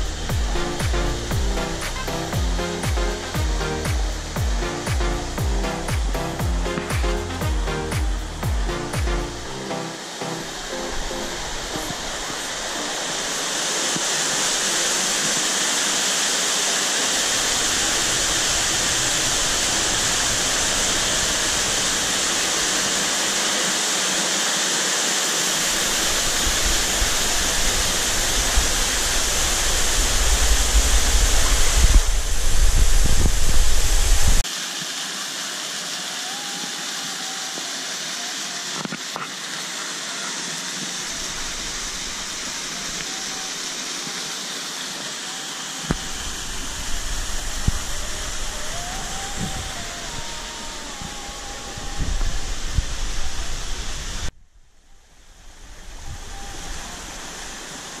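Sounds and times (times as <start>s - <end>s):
low rumble: 0.0s - 1.8s
waterfall rushing: 0.0s - 54.3s, 55.5s - 58.0s.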